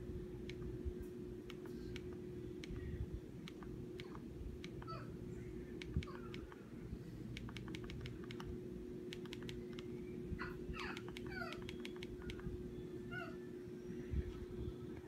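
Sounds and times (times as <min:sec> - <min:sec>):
steady low hum: 0:00.0 - 0:15.0
remote control button clicks: 0:07.4 - 0:08.5, 0:09.1 - 0:09.9, 0:11.0 - 0:12.4.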